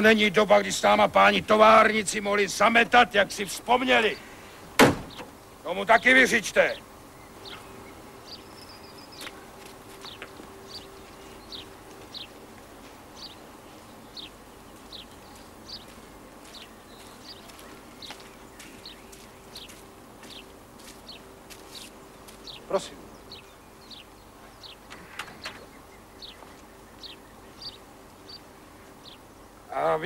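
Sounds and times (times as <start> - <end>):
faint steady hum: 0.0 - 30.0
bird chirping: 3.7 - 12.4, 13.1 - 29.8
sharp knock: 4.8 - 5.3.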